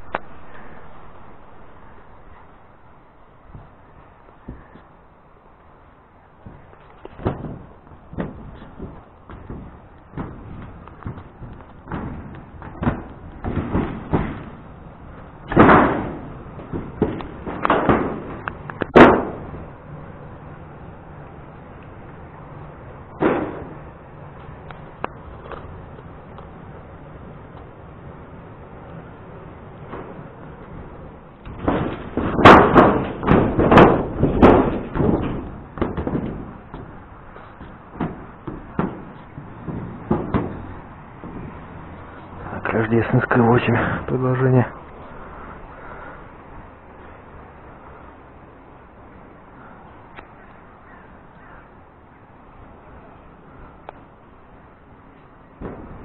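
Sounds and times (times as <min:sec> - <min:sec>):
footsteps on metal roof: 0:03.4 - 0:19.8, 0:29.8 - 0:44.1, 0:55.1 - 0:56.0.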